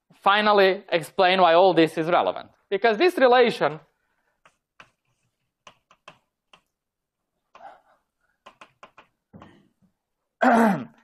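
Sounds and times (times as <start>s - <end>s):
faint clicks and taps: 4.3s - 6.8s, 8.4s - 10.0s.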